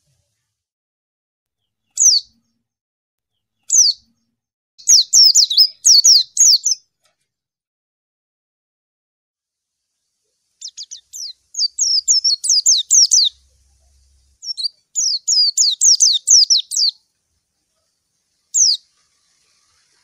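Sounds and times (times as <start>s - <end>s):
bird singing high whistled notes: 1.9s - 2.4s, 3.7s - 4.2s, 4.8s - 6.8s, 10.6s - 13.5s, 14.4s - 17.0s, 18.5s - 20.0s.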